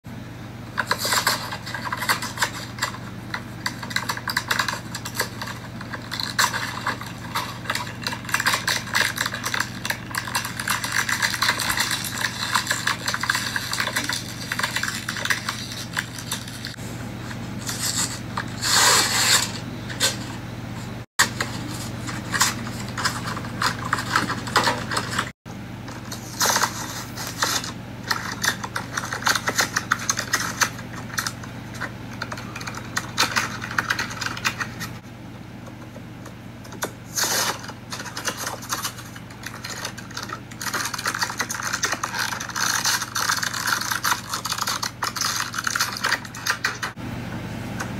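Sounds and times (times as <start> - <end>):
steady low hum: 0.1 - 47.9
plastic bags crinkling and tearing: 3.7 - 16.8, 37.1 - 47.0.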